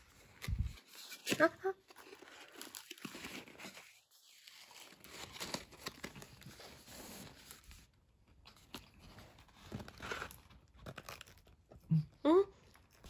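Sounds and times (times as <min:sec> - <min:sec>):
paper sleeve crinkling: 0:00.3 - 0:07.9.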